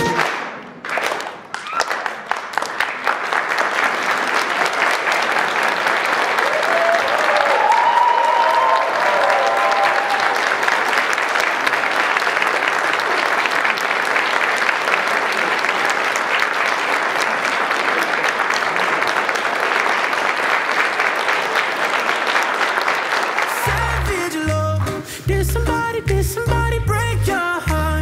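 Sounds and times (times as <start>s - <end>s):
pop song playing: 0.0s - 0.2s, 23.6s - 28.0s
audience applauding: 0.0s - 24.6s.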